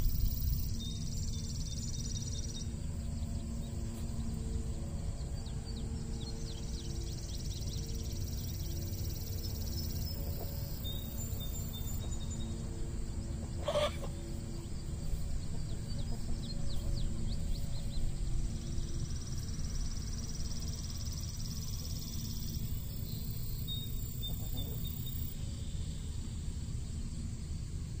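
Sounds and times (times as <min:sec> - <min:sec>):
low steady rumble: 0:00.0 - 0:28.0
soft background music: 0:00.1 - 0:24.1
chicken call: 0:13.6 - 0:14.2.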